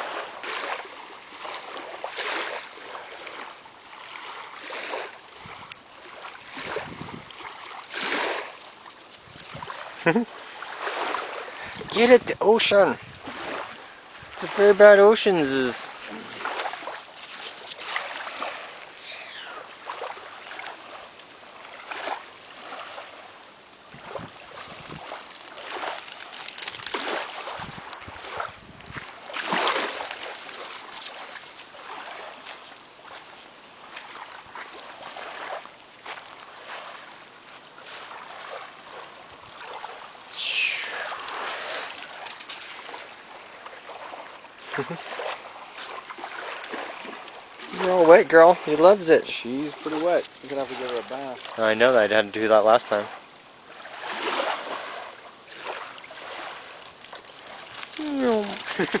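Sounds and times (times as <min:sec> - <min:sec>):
small waves lapping: 0:00.0 - 0:59.0
dog splashing in water: 0:06.0 - 0:10.0, 0:16.0 - 0:19.0, 0:23.9 - 0:37.0, 0:40.7 - 0:48.0, 0:53.8 - 0:59.0.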